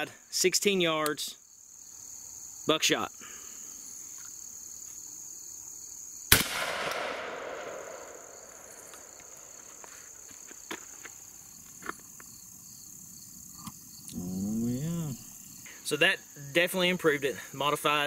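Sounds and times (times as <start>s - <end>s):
shotgun shot echoing: 6.3s - 8.8s.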